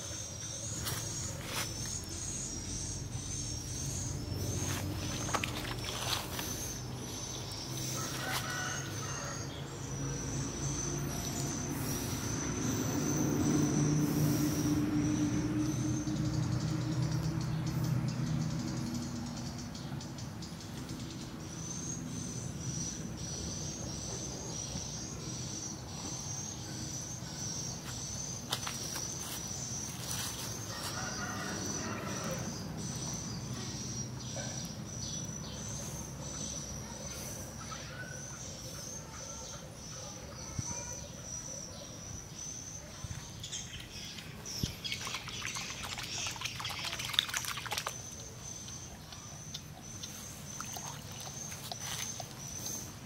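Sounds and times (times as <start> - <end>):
water splashing with clicks: 43.8 - 52.4
rain falling on pond water: 44.8 - 48.4.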